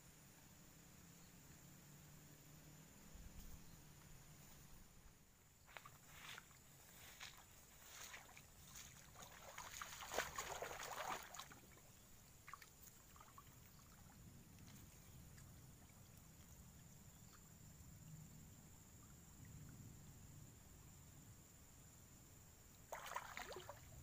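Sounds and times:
rustling of grass and leaves: 3.2s - 15.1s
footsteps through tall grass: 5.6s - 11.6s.

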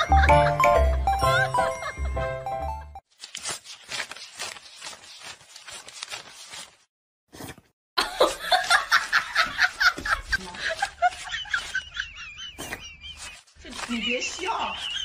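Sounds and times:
background music: 0.0s - 3.0s
banknotes rustling: 3.1s - 6.9s, 8.6s - 15.0s.

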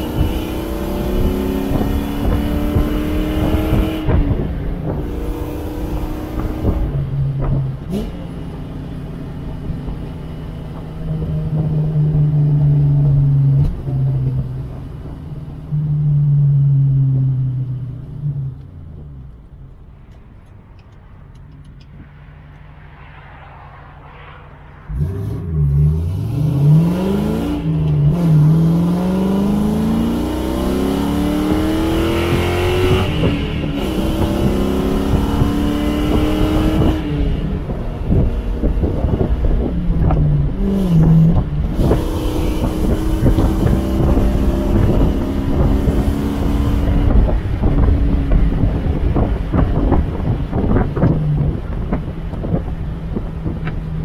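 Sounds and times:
wind buffeting open cabin: 0.0s - 7.9s, 31.5s - 54.0s
car engine accelerating: 0.0s - 54.0s.

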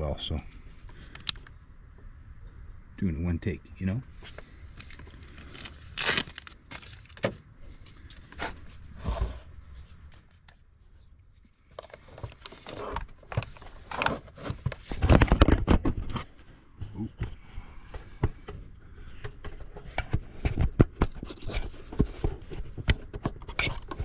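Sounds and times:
plastic cover knocking and scraping: 11.7s - 16.3s, 17.9s - 24.0s.

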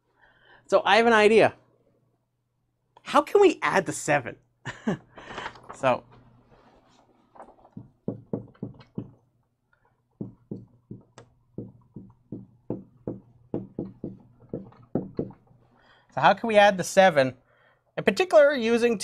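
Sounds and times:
marker writing on a whiteboard: 10.2s - 15.6s.

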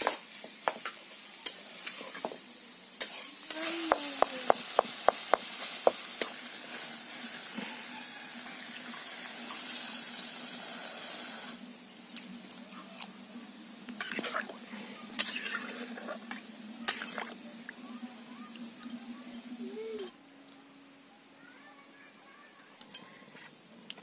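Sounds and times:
curry hissing in a hot pan: 0.0s - 20.0s
metal spatula scraping a pan: 3.0s - 3.5s, 14.0s - 14.4s, 15.1s - 17.2s.

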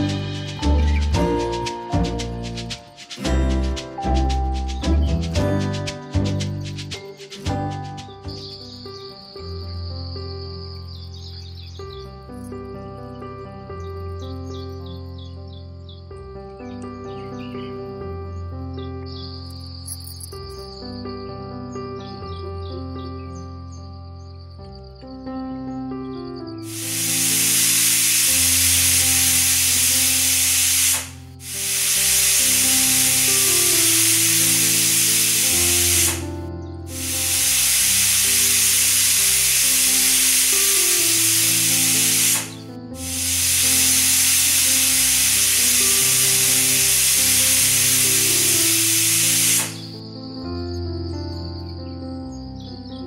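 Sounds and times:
background music: 0.0s - 53.0s
pressure cooker hissing: 26.7s - 36.3s, 36.9s - 49.9s.

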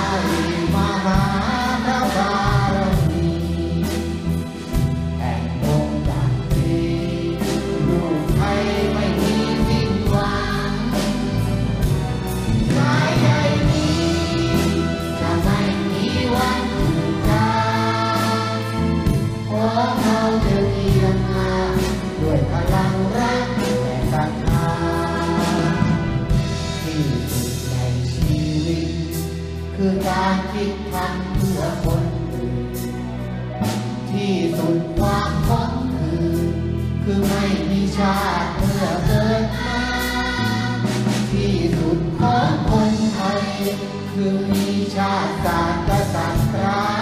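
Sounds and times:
orchestra with violins: 0.0s - 27.7s
children's choir singing: 0.0s - 47.0s
man singing into a microphone: 5.2s - 10.8s, 19.5s - 26.0s, 26.6s - 32.9s, 34.1s - 39.9s, 41.3s - 47.0s.

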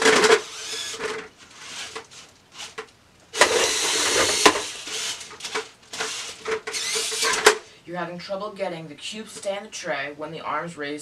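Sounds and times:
robot motors and gears whirring: 3.4s - 5.3s.

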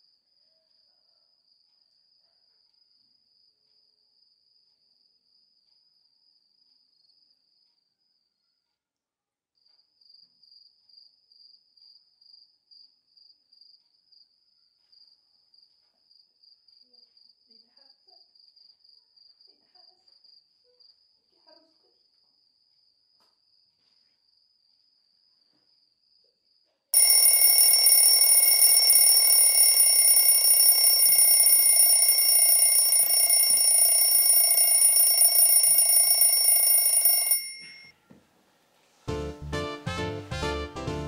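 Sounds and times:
crickets chirping: 27.0s - 36.6s
electronic phone ringing: 27.0s - 37.9s.

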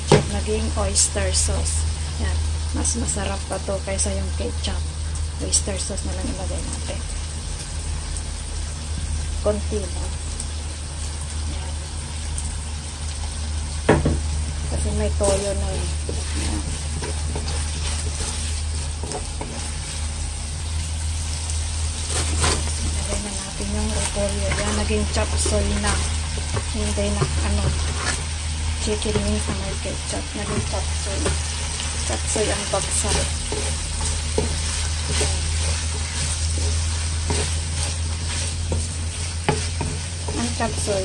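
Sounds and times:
food sizzling in a wok: 0.0s - 41.0s
steady low hum: 0.0s - 41.0s
wooden spatula scraping wok: 14.5s - 20.5s, 21.1s - 41.0s.

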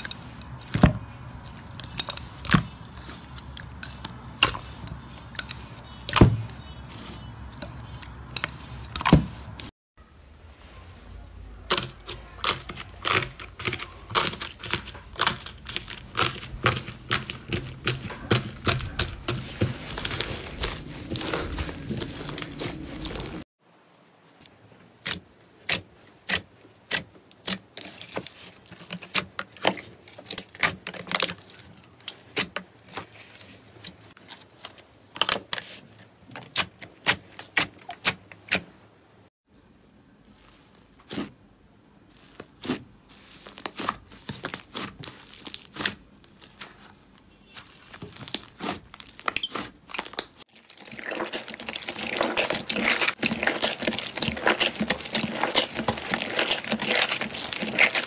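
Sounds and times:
slime squeezed crackling: 11.7s - 23.4s, 40.2s - 41.3s, 42.1s - 58.0s.

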